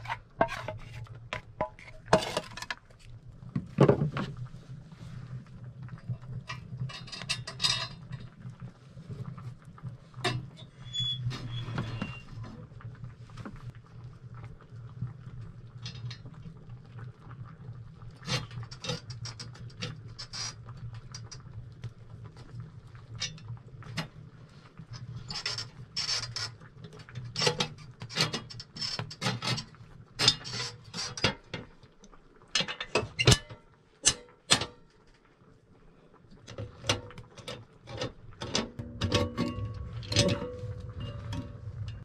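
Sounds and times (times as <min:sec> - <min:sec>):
metal plate clinking and scraping: 0:00.0 - 0:02.8, 0:06.5 - 0:08.3, 0:36.6 - 0:42.0
low steady hum: 0:38.0 - 0:42.0.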